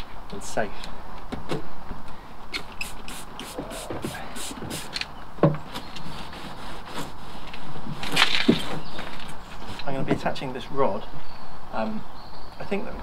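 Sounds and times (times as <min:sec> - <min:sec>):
spray bottle hissing: 0:02.6 - 0:05.0.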